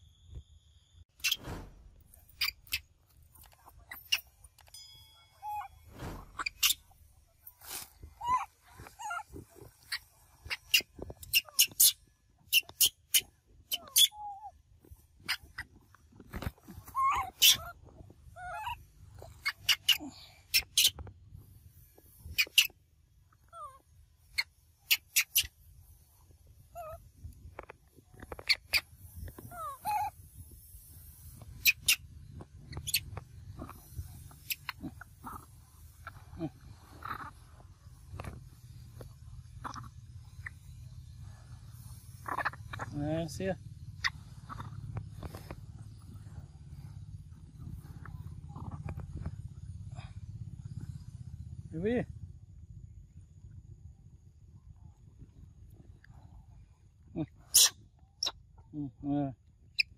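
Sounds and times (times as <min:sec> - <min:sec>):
macaques squeaky calls: 0:01.2 - 0:01.5, 0:02.3 - 0:02.9, 0:03.9 - 0:04.4, 0:05.3 - 0:14.5, 0:16.8 - 0:17.8, 0:18.4 - 0:21.0, 0:22.3 - 0:22.8, 0:23.6 - 0:25.5, 0:26.8 - 0:27.0, 0:28.4 - 0:30.2, 0:31.5 - 0:37.4, 0:39.5 - 0:40.8, 0:41.9 - 0:43.0, 0:43.9 - 0:45.0, 0:57.4 - 0:58.4
rustling: 0:01.2 - 0:11.0
macaques calling: 0:05.4 - 0:06.8, 0:17.0 - 0:17.7, 0:32.7 - 0:37.5, 0:39.6 - 0:40.6, 0:42.1 - 0:43.0, 0:44.0 - 0:44.9, 0:57.4 - 0:58.3.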